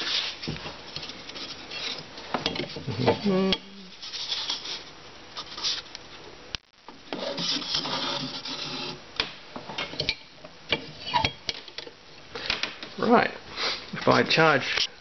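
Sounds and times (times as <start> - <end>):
cardboard tube scraping in pipe: 7.1 - 9.0.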